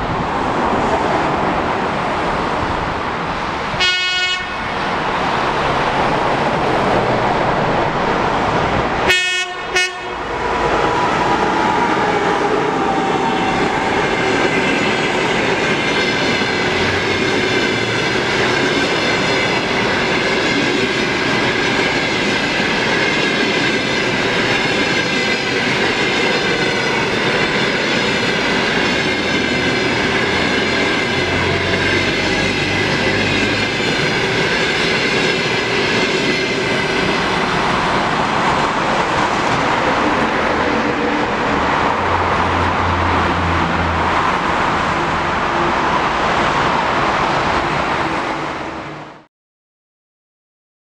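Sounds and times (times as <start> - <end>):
train rumbling past: 0.0 - 49.3
locomotive horn: 3.8 - 4.7, 9.1 - 10.4.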